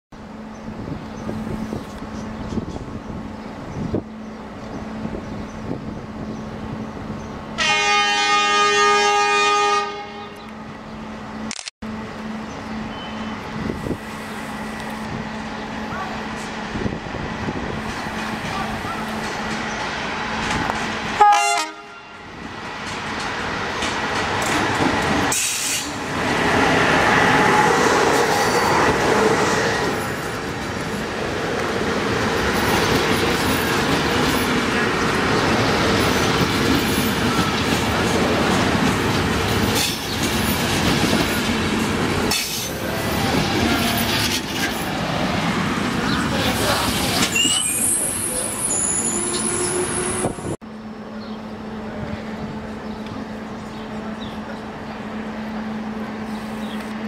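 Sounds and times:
train coaches rolling past: 0.2s - 57.0s
locomotive horn blast: 7.6s - 10.6s, 21.2s - 22.4s.

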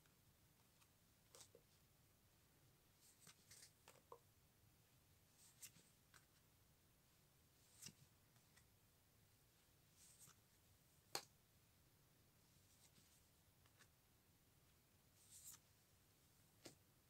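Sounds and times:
trading cards rustling and clicking: 3.1s - 4.2s.

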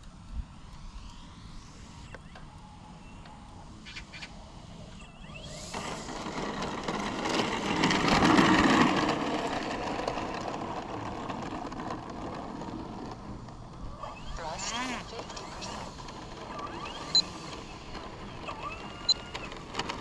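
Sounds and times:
model plane propeller passing: 0.0s - 20.0s.

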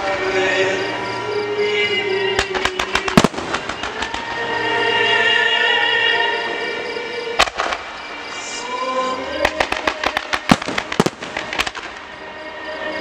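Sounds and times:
music playing: 0.0s - 13.0s
fireworks banging and cracking: 2.4s - 4.4s, 7.4s - 7.9s, 9.4s - 12.0s.

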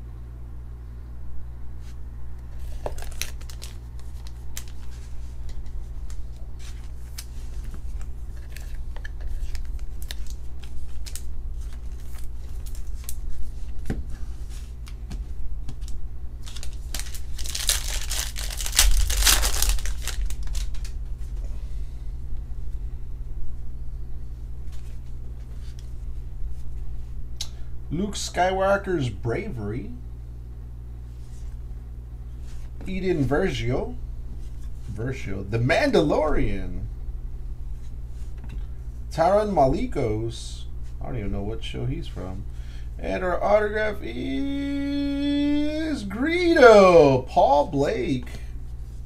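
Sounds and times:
steady low hum: 0.0s - 49.0s
cards shuffling: 1.8s - 21.3s
foil tearing and crinkling: 2.7s - 5.2s, 6.1s - 13.4s, 15.8s - 21.0s.

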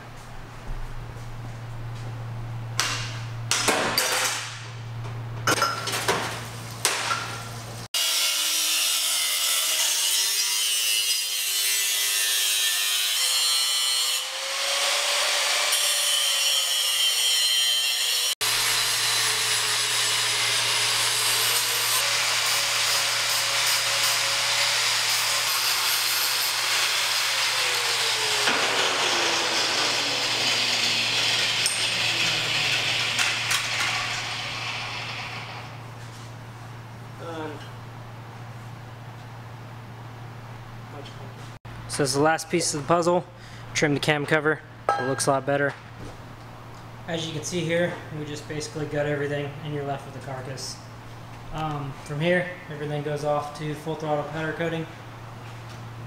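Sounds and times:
angle grinder grinding metal: 8.0s - 35.8s.

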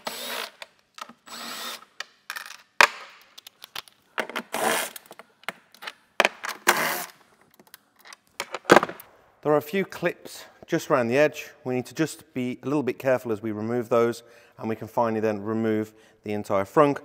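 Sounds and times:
cordless drill spinning: 0.0s - 2.0s, 4.5s - 5.1s.

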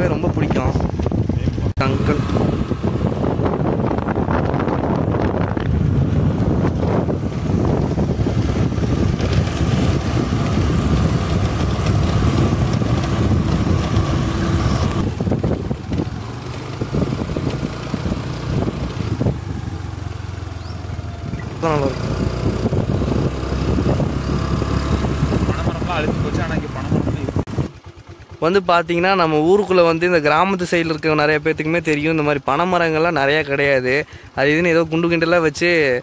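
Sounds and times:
wind buffeting microphone: 0.0s - 28.3s
road vehicle rumble: 0.0s - 36.0s.

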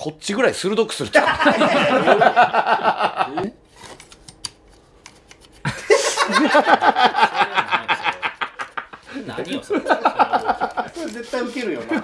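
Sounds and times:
men laughing: 1.2s - 3.6s, 5.6s - 12.0s.

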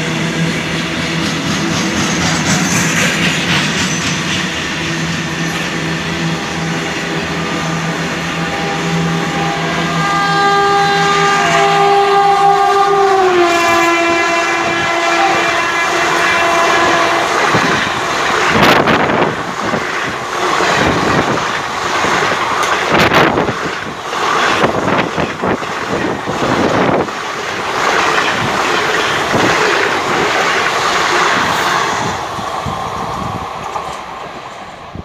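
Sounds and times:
train rushing past: 0.0s - 35.0s
train horn blast: 6.3s - 19.2s
wheels clattering over rail joints: 17.5s - 31.6s.

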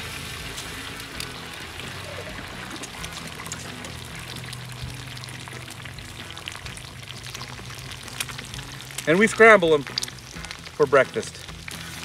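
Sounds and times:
background music: 0.0s - 12.0s
eggs sizzling and crackling: 0.0s - 12.0s.

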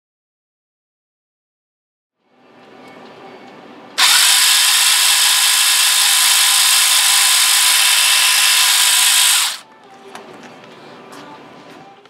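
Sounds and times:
electric motor and gearbox whirring: 4.0s - 9.6s.

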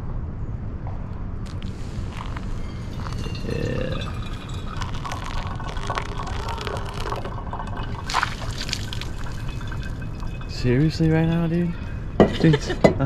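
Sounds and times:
water trickling into filter: 1.5s - 12.7s.

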